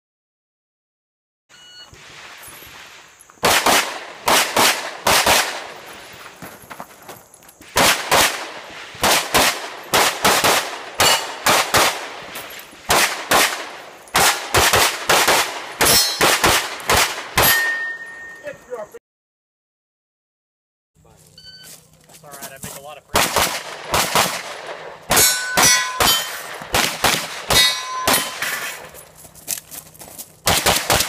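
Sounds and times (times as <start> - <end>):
rapid pistol fire: 3.4 - 5.8, 7.7 - 12.3, 12.9 - 17.5, 23.1 - 28.4, 30.4 - 31.0.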